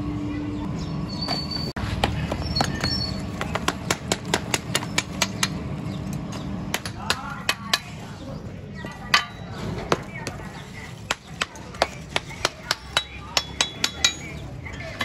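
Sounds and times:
hammer knocking metal parts: 0:11.1 - 0:15.0.

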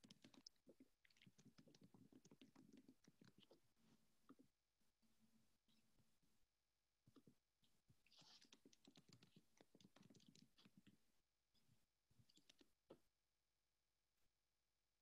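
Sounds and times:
faint rapid clicking and tapping: 0:00.0 - 0:04.5, 0:08.0 - 0:13.1.

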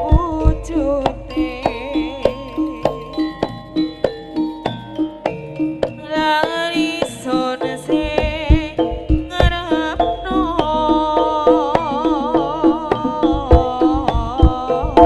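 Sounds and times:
lead melody with wavering vibrato: 0:00.0 - 0:15.0
hand drum strokes: 0:07.0 - 0:15.0.

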